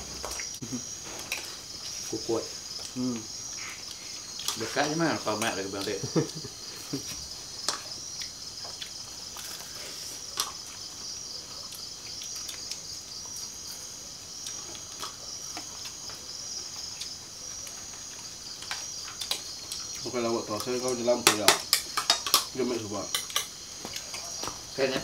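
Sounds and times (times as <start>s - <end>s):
night insects chorus: 0.0s - 25.0s
spoons clinking on plates: 21.3s - 22.5s.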